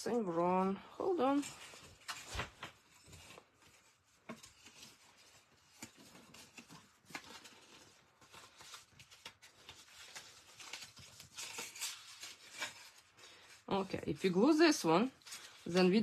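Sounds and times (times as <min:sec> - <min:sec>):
paper rustling and tapping: 0:01.7 - 0:13.4.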